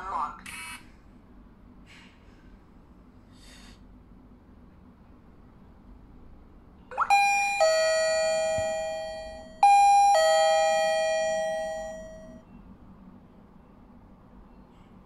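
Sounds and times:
two-tone doorbell chime: 0:06.9 - 0:12.4.

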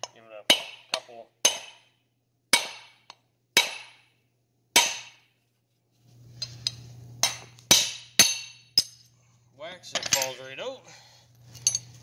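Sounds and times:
hammer striking steel: 0:00.0 - 0:04.1, 0:04.7 - 0:05.3, 0:07.2 - 0:09.1.

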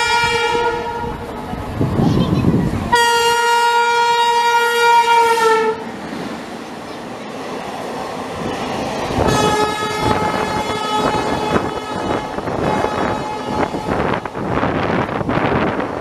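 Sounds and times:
train horn blaring: 0:00.0 - 0:01.3, 0:02.9 - 0:06.0, 0:09.1 - 0:14.8.

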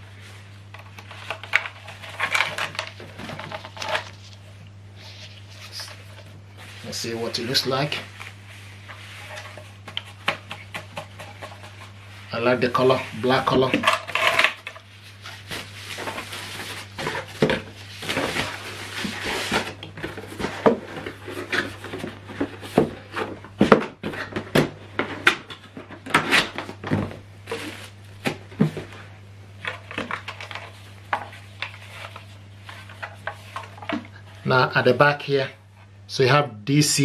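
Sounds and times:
low steady hum: 0:00.0 - 0:37.0
rustle of packaging: 0:11.7 - 0:22.6.

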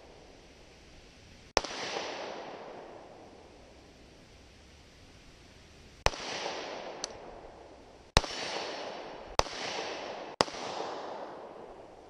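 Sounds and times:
pistol shots: 0:01.6 - 0:03.2, 0:06.0 - 0:07.4, 0:08.2 - 0:12.0
gunshot echo from woods: 0:01.6 - 0:03.4, 0:06.0 - 0:12.0.

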